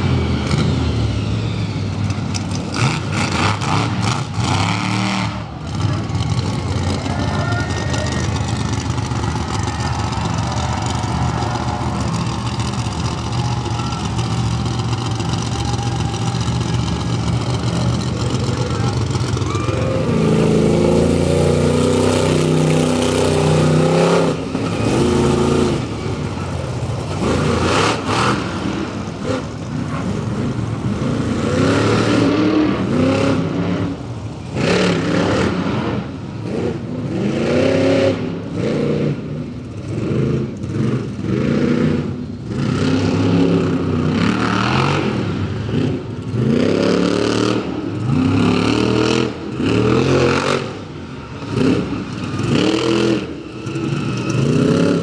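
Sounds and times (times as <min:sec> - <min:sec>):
monster truck engine revving: 0:00.0 - 0:55.0.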